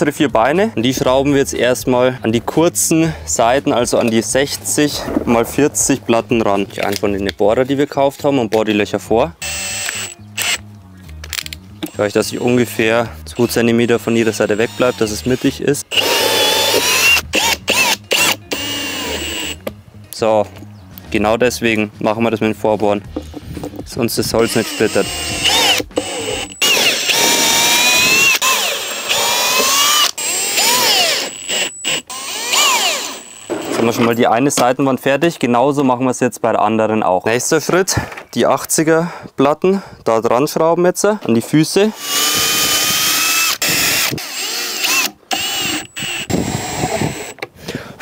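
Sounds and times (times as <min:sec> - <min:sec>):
cordless drill whirring into wood: 0:09.4 - 0:10.6, 0:13.4 - 0:19.6, 0:24.4 - 0:33.7, 0:42.0 - 0:47.4.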